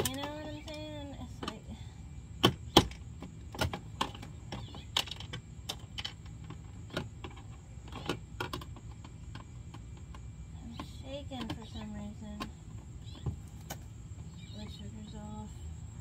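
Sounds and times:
plastic clicks and knocks: 2.4 - 13.8.

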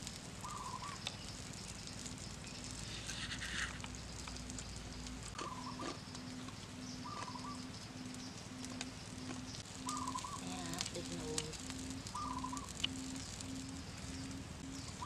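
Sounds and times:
wood fire crackling and popping: 0.0 - 15.0
animal chirps: 0.4 - 1.2, 5.3 - 15.0.

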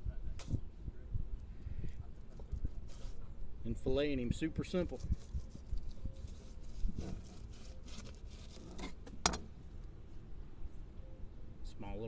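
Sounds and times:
knife slicing and scraping fish: 5.4 - 9.0.

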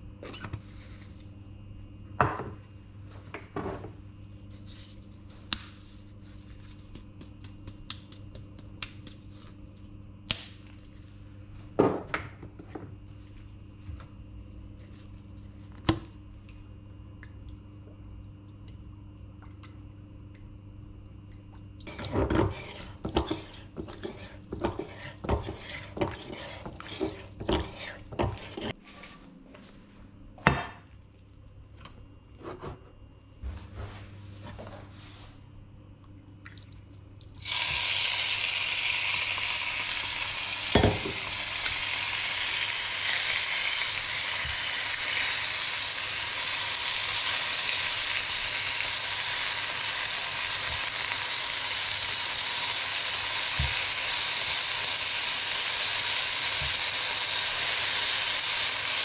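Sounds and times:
steady low hum: 0.0 - 37.5.

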